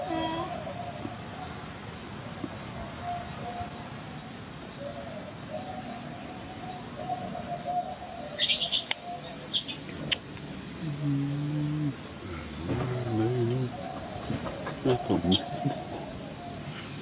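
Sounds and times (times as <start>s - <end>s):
faint wavering low calls: 0.0s - 17.0s
high-pitched chirping calls: 5.8s - 10.3s.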